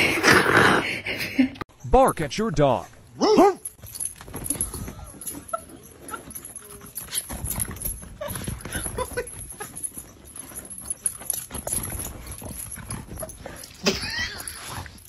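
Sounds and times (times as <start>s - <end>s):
dog crying: 3.2s - 3.7s.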